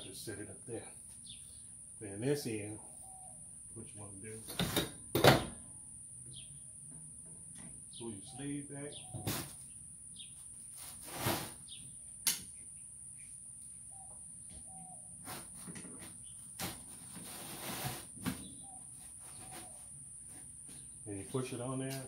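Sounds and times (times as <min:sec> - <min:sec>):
faint bird chirps: 0:02.8 - 0:03.9, 0:07.8 - 0:10.4, 0:11.6 - 0:15.2, 0:18.4 - 0:20.0
rustle: 0:10.4 - 0:11.8, 0:16.5 - 0:20.0.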